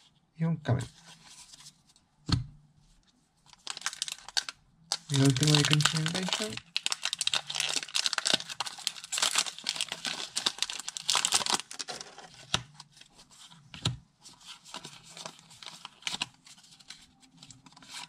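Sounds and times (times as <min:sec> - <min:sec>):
foil wrapper crinkling: 0:03.5 - 0:12.3.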